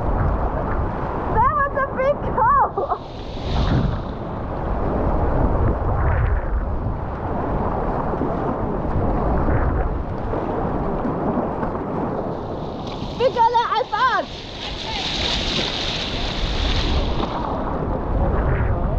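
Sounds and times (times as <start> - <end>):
whitewater rapids rushing: 13.2 - 17.6.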